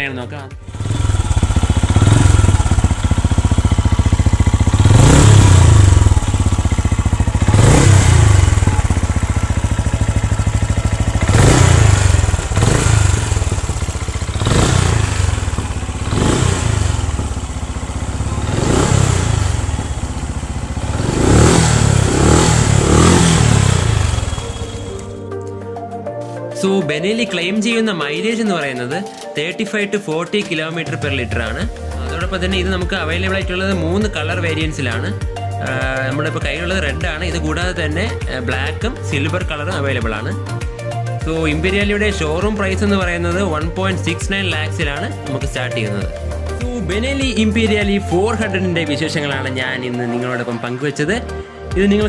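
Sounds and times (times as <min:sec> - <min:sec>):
motorcycle engine revving: 0:00.6 - 0:25.2.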